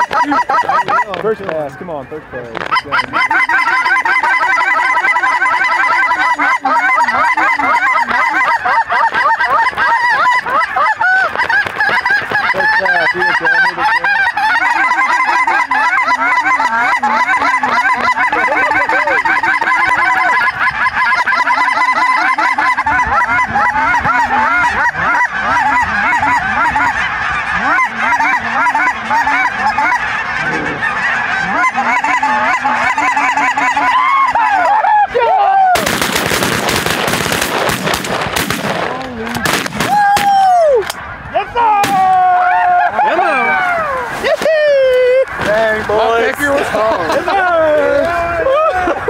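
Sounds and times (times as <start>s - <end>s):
geese honking and cackling: 0.0s - 49.0s
shotgun fire: 35.8s - 40.3s.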